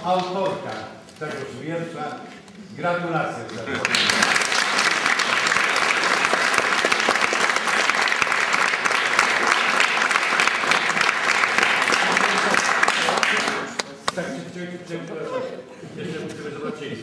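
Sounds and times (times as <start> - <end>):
audience applauding: 3.7 - 14.1.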